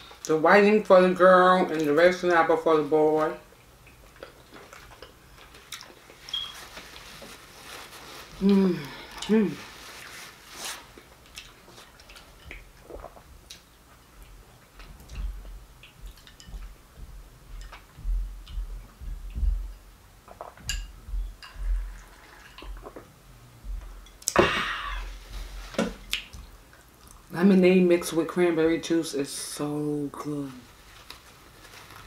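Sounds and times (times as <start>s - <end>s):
chewing with mouth clicks: 3.5s - 7.0s, 10.9s - 19.4s, 26.0s - 27.3s.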